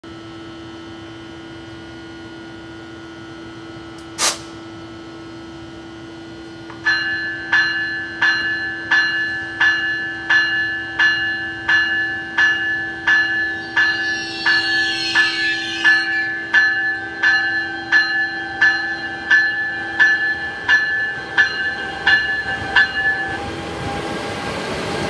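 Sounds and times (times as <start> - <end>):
locomotive hum: 0.2 - 25.0
sharp hiss: 4.2 - 4.6
warning bell ringing: 6.8 - 23.8.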